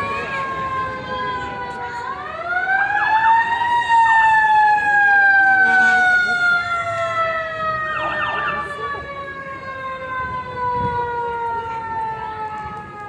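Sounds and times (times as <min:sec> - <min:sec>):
siren falling tone: 0:06.5 - 0:10.1.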